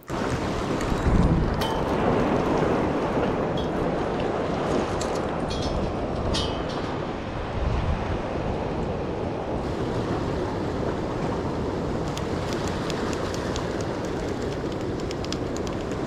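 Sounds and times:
waves washing against rocks: 0.0s - 16.0s
wind buffeting microphone: 0.0s - 16.0s
light clicks: 12.1s - 16.0s.

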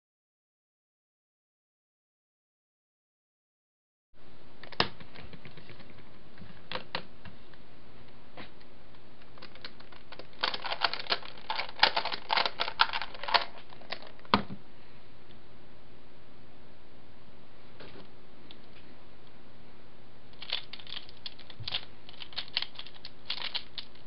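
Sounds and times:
twisty puzzle clicking: 20.4s - 24.0s.

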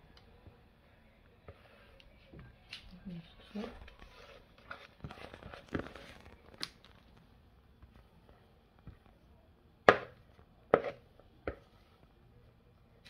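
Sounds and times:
batter scraping: 3.2s - 7.2s.

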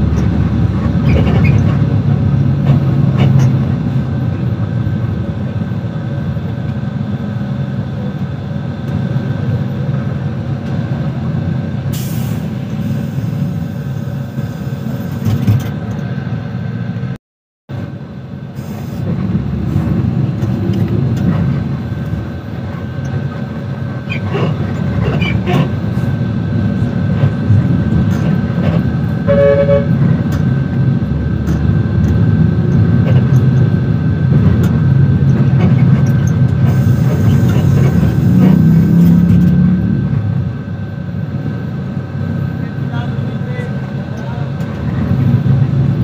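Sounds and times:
bus engine and road rumble: 0.0s - 46.0s
vehicle horn honk: 29.3s - 30.0s.

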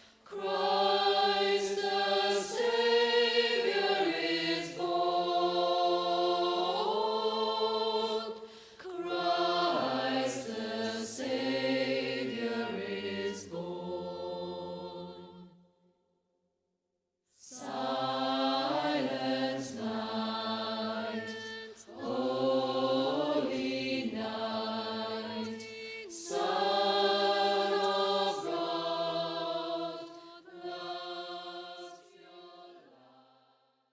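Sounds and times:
choir singing a carol: 0.0s - 15.7s, 17.4s - 33.6s.

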